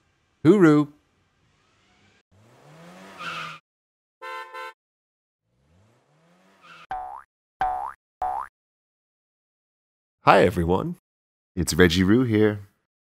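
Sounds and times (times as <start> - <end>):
horn honks: 4.2 - 4.8.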